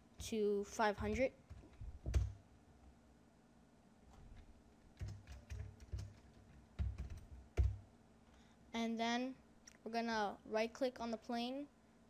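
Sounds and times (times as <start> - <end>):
keyboard keystrokes: 1.0 - 2.4, 5.0 - 7.8.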